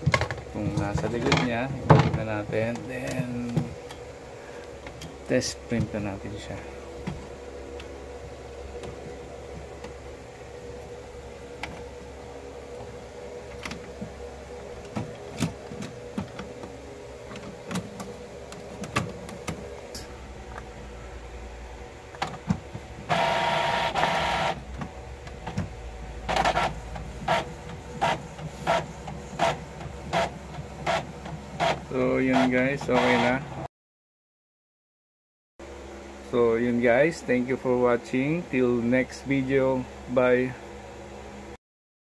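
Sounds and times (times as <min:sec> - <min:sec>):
printer running: 0:00.0 - 0:21.2, 0:21.9 - 0:33.6
printer head moving back and forth: 0:26.3 - 0:33.4.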